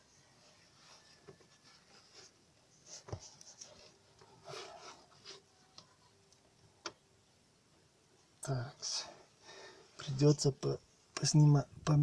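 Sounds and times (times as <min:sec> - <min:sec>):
rubbing and rustling of rubber: 0:00.0 - 0:06.3.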